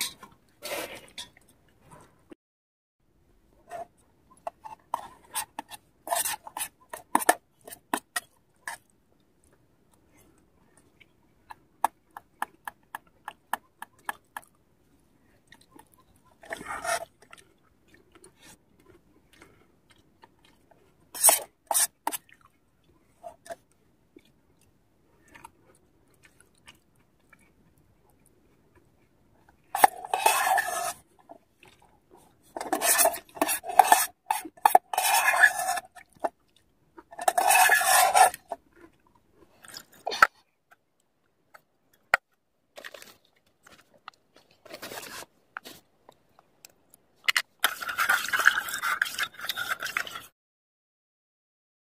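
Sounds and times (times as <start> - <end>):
metal spoon scraping metal pot: 3.7 - 8.8, 16.4 - 17.1, 21.1 - 22.2, 29.8 - 31.0, 32.6 - 36.0, 37.1 - 38.6, 47.3 - 50.3
chewing: 15.2 - 42.2, 45.6 - 50.3.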